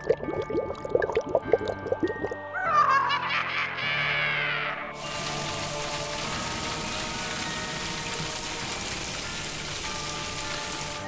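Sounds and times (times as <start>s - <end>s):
background music: 0.0s - 11.0s
cartoon water spray hiss: 5.0s - 6.9s.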